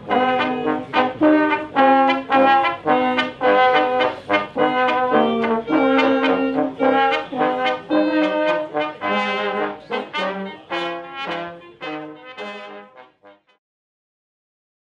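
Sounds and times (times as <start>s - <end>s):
trombone and trumpet playing: 0.0s - 13.6s.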